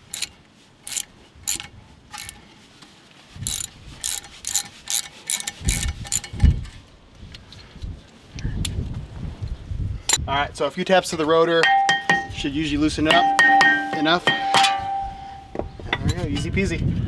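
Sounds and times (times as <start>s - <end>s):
hand ratchet clicking: 0.0s - 2.4s, 3.4s - 6.5s.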